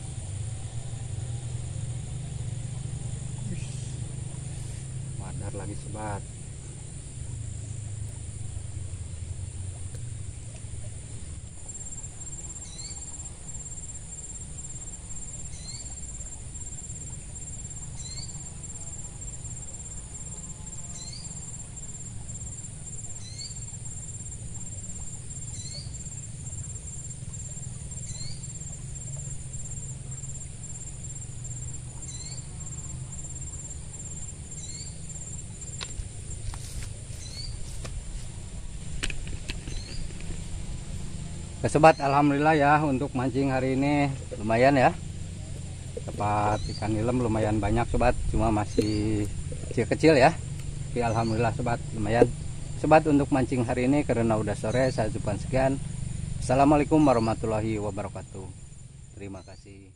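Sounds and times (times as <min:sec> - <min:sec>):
insects trilling: 0:00.0 - 0:59.9
low steady rumble: 0:00.0 - 0:59.9
rising chirp: 0:34.6 - 0:38.7, 0:39.6 - 0:53.3.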